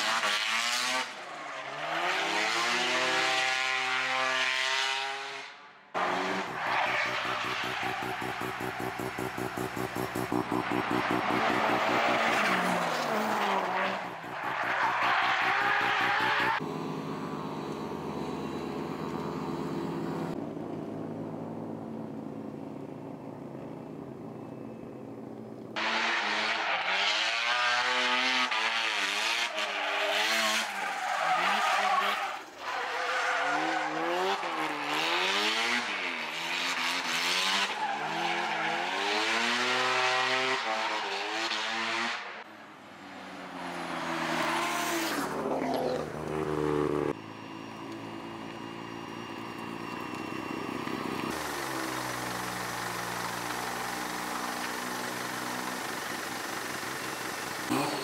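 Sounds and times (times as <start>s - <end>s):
car engine revving hard: 0.0s - 14.4s, 33.5s - 42.4s
tyre screech: 6.2s - 16.6s.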